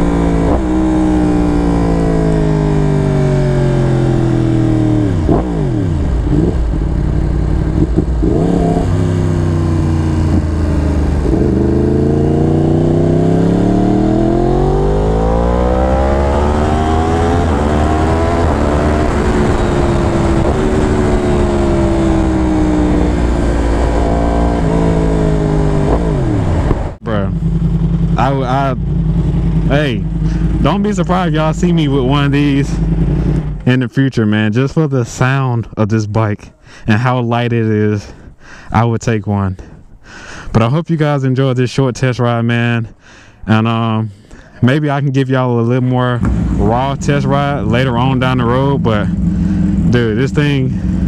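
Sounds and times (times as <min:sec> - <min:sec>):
motorcycle engine revving: 0:00.0 - 0:33.8, 0:46.0 - 0:51.0.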